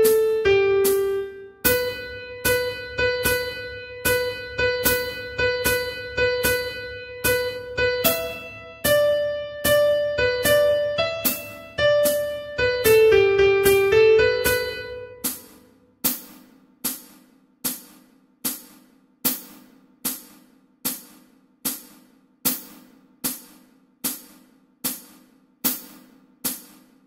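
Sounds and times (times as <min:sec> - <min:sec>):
piano notes: 0:00.0 - 0:15.7
percussion clicks keeping time: 0:00.0 - 0:18.8.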